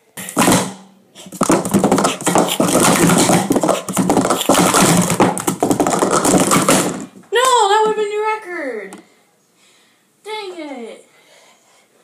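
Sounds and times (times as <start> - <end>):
plastic cups clattering: 0.2 - 7.2.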